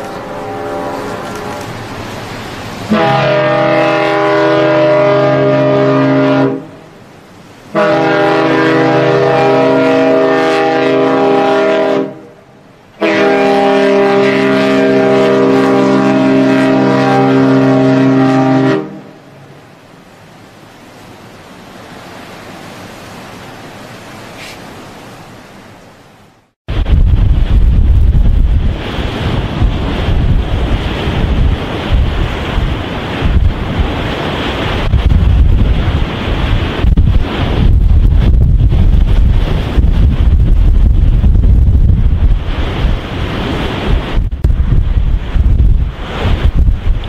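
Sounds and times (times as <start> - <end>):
ship's deep horn blasts: 0.0 - 19.7, 26.7 - 46.4
waves: 0.0 - 47.0
wind: 0.0 - 47.0.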